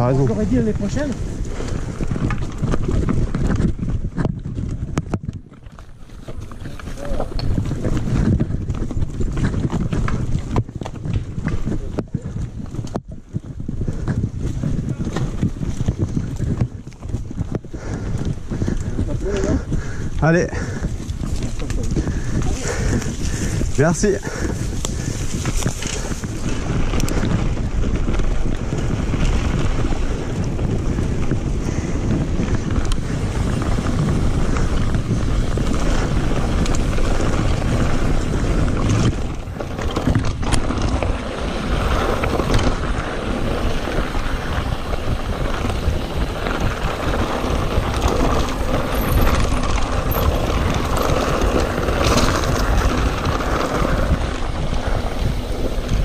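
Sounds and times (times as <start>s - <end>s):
bike rattling: 0.0s - 56.0s
tyres rumbling on gravel: 0.0s - 56.0s
wind buffeting microphone: 0.0s - 56.0s.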